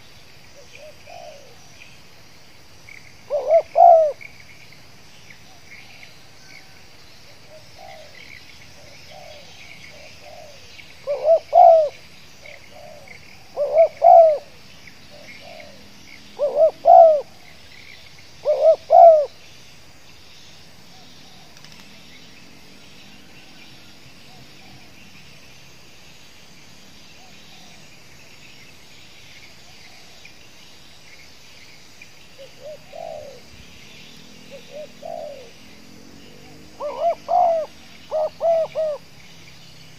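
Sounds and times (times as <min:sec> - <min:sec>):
faint bird chirping: 0:00.0 - 0:39.9
faint insect chirping: 0:00.0 - 0:39.9
dove cooing: 0:00.6 - 0:01.7, 0:03.2 - 0:04.3, 0:05.4 - 0:17.7, 0:18.4 - 0:19.4, 0:32.4 - 0:39.1.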